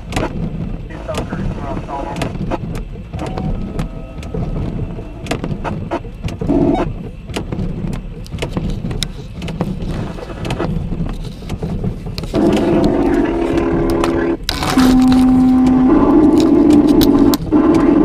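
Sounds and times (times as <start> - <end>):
low thunder rumble: 0.0 - 18.0
raindrops ticking on microphone: 0.0 - 18.0
brief pitched sound: 3.2 - 5.4.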